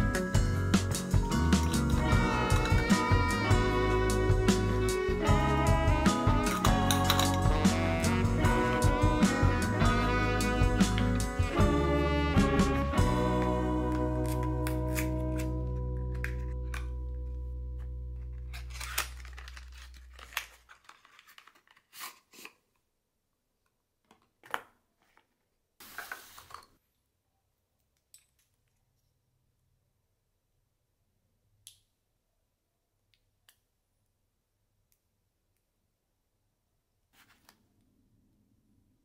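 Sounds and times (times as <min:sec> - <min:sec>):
background music: 0:00.0 - 0:19.9
packaging crinkling and rustling: 0:17.8 - 0:22.6.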